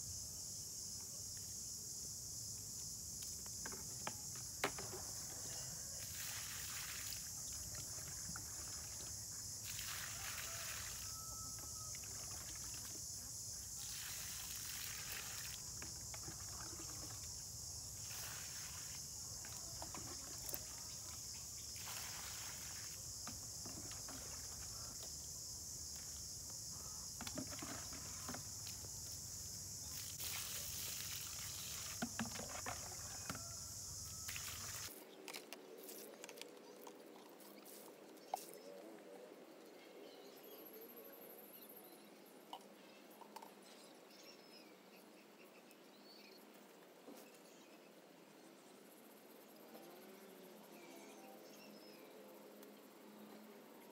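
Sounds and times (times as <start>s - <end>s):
steady high-pitched hiss: 0.0s - 35.1s
water pouring onto soil: 6.0s - 11.1s, 13.8s - 17.3s, 17.9s - 23.1s, 29.9s - 33.0s, 34.3s - 34.9s.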